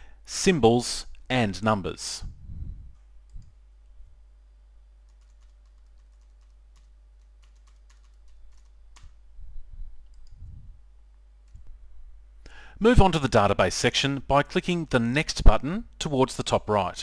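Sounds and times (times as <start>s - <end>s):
keyboard typing: 5.1s - 9.2s.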